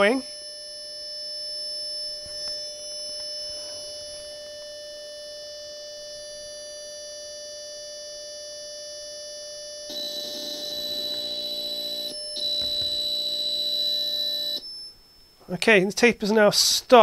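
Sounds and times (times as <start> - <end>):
cassette data tones: 9.9 - 15.0.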